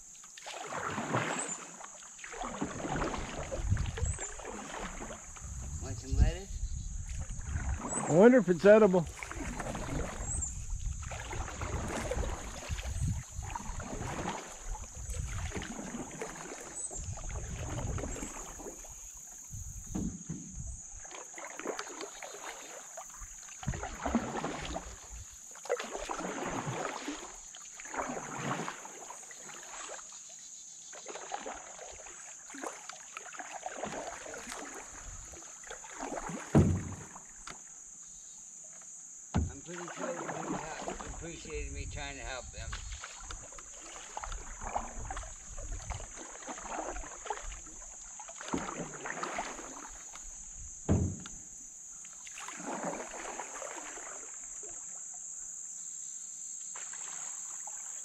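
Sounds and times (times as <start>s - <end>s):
canoe paddle strokes in water: 0.0s - 58.0s
sharp knock: 39.3s - 39.6s, 50.9s - 51.4s.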